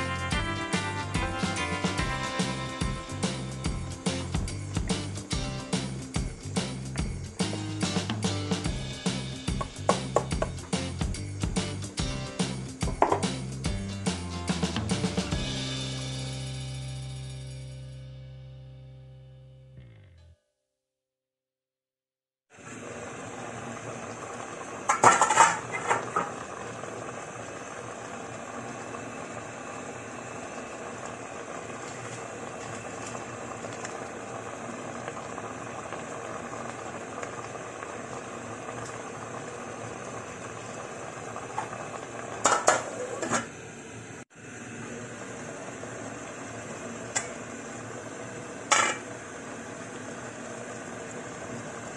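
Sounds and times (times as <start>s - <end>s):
pot simmering and bubbling: 2.4s - 13.8s, 22.5s - 51.9s
metal lid clattering against pot: 24.9s - 26.3s, 42.4s - 43.5s, 48.7s - 49.0s.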